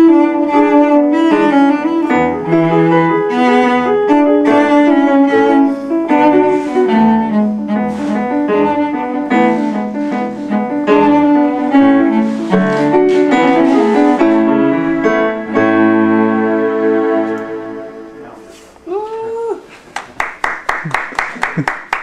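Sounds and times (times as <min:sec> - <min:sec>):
cello playing: 0:00.0 - 0:18.8
piano playing: 0:00.0 - 0:18.8.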